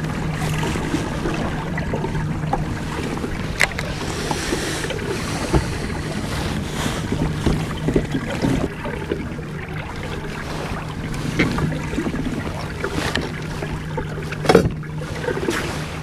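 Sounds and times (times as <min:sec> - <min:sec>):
wind on microphone: 0:00.0 - 0:08.9
open water: 0:00.0 - 0:16.0.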